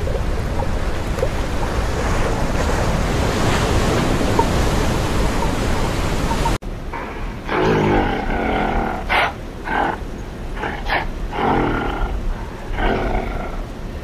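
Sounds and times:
gorilla calling: 7.4 - 13.6.

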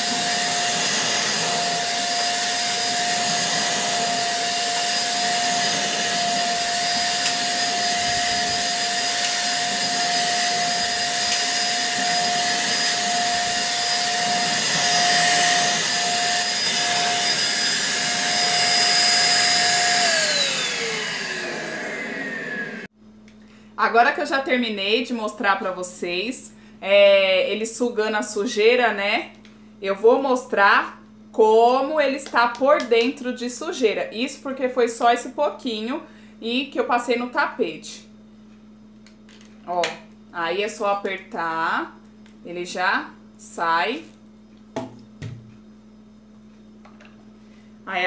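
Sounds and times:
vacuum cleaner running: 0.0 - 22.9
vacuum motor winding down: 0.0 - 22.9.

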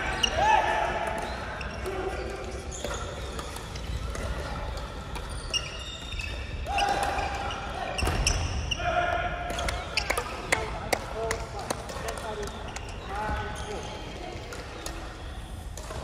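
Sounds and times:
shoe squeaks: 1.2 - 8.8.

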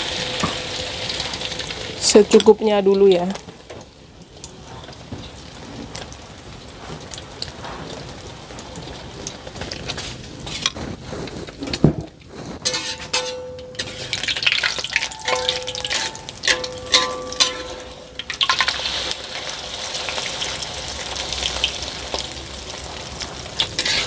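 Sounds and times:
egg sizzling in oil: 0.0 - 24.0
metal spatula scraping wok: 12.4 - 20.1, 23.6 - 24.0.

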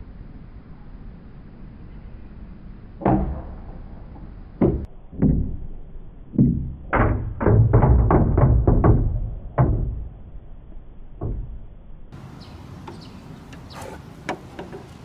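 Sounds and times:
small ball bouncing on wood: 11.2 - 11.6.

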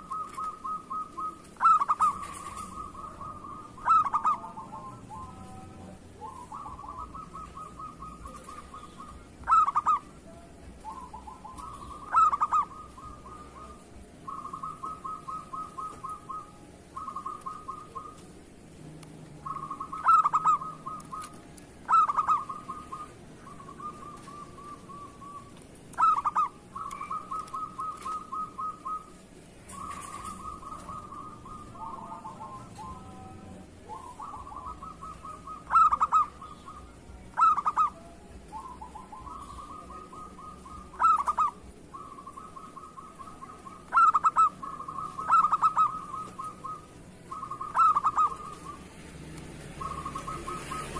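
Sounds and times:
dove cooing: 0.0 - 50.9.

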